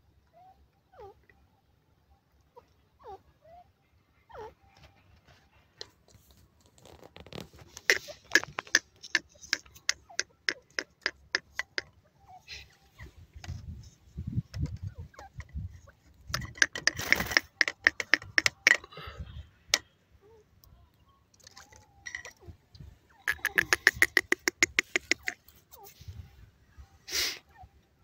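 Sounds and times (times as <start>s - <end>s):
francolin clucking calls: 7.7s - 18.8s, 19.6s - 26.3s.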